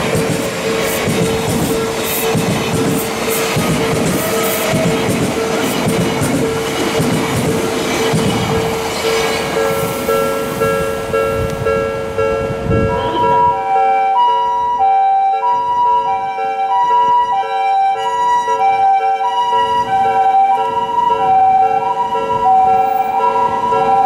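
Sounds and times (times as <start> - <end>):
level-crossing warning bell: 0.0 - 24.0
ambulance two-tone siren: 3.2 - 6.6, 9.6 - 24.0.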